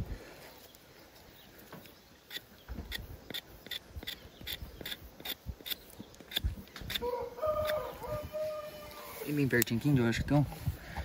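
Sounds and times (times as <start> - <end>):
hoof knife scraping horn: 2.3 - 8.1
rooster crowing: 7.0 - 9.3.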